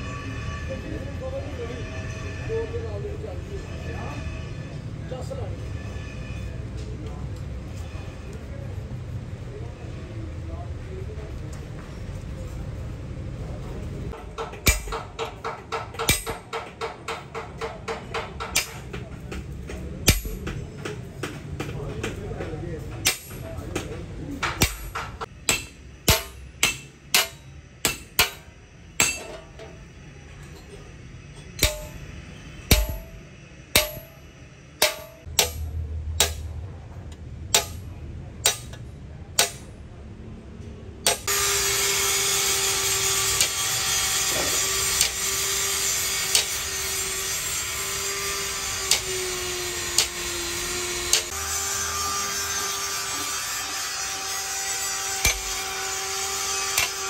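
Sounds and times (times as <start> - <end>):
constant hum: 3.4 - 42.0, 42.6 - 57.0
hammer tapping metal punch: 14.1 - 29.8, 31.4 - 34.2, 34.8 - 39.8, 41.0 - 41.3, 48.8 - 49.2, 55.2 - 55.6.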